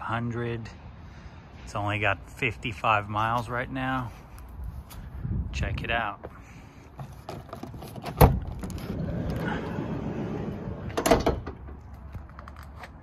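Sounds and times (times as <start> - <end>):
sliding door rolling on track: 8.6 - 11.8
door latch clunk: 10.9 - 11.8.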